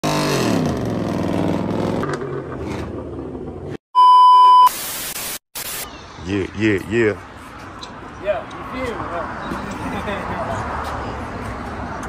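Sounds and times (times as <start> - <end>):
engine revving: 0.0 - 3.6
electronic bleep tone: 4.0 - 4.8.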